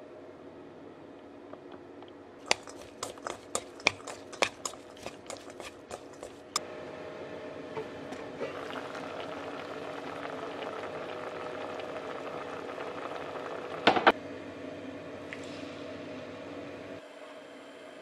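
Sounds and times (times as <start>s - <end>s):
broth bubbling in a pot: 2.4s - 6.6s, 7.8s - 14.2s.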